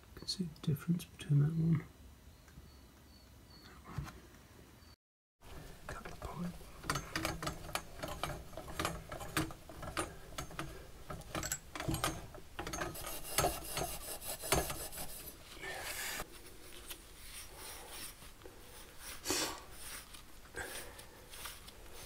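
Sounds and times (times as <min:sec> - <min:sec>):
copper pipe being cut by hand: 0:12.6 - 0:15.4.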